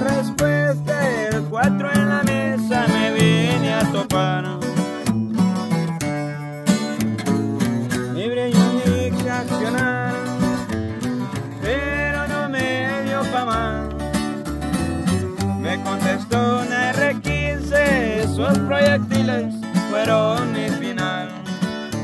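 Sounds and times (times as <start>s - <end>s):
person singing: 0.0s - 4.8s, 8.2s - 10.6s, 11.4s - 14.1s, 15.4s - 22.0s
acoustic bass low notes: 0.0s - 22.0s
acoustic guitars strumming: 0.0s - 22.0s.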